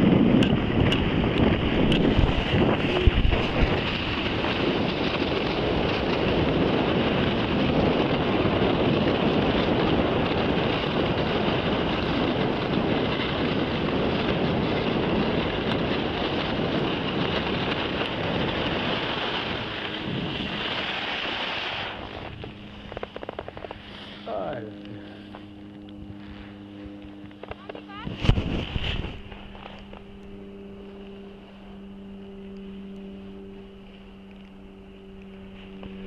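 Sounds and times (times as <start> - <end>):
wind buffeting microphone: 0.0 - 36.0
skis hissing over snow: 1.7 - 25.4, 27.9 - 29.9, 35.5 - 36.0.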